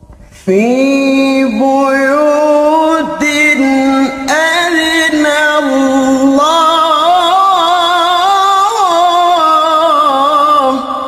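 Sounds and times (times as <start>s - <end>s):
man reciting melodically: 0.4s - 11.0s.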